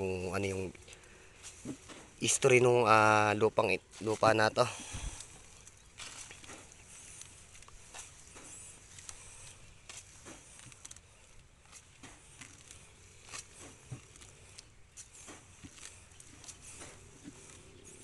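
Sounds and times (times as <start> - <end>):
rustling plants: 0.0 - 18.0
soft footsteps on grass: 0.0 - 18.0.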